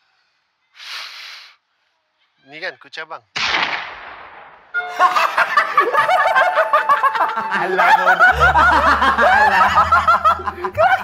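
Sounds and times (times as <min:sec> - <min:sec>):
men laughing loudly: 0:04.8 - 0:11.0.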